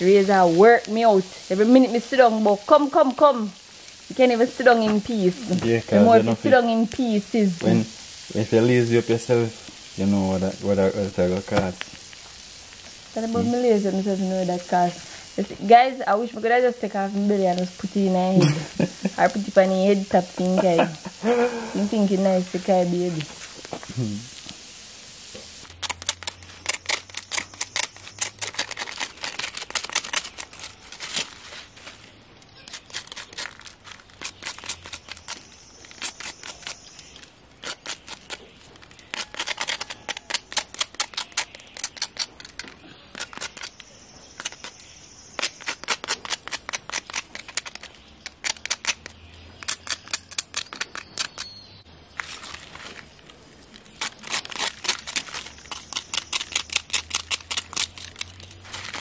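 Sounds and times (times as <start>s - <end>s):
knife scraping burnt fish: 25.6s - 51.5s, 52.2s - 59.0s.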